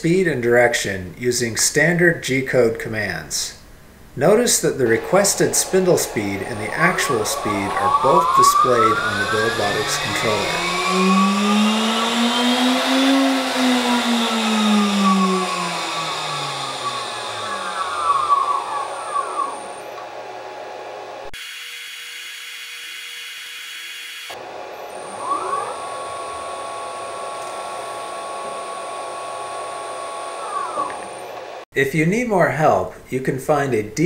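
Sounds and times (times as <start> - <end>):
spindle motor whining: 4.5 - 31.6.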